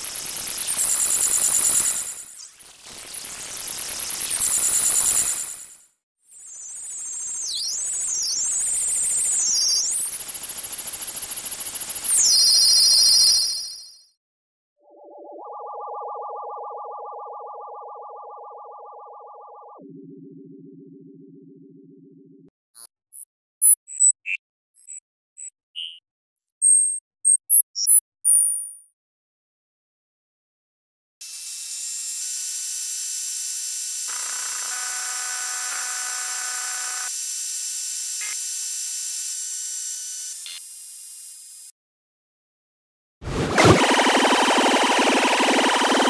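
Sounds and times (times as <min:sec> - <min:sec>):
warbling electronic tone: 0:18.8 - 0:28.8, 0:43.5 - 0:46.0.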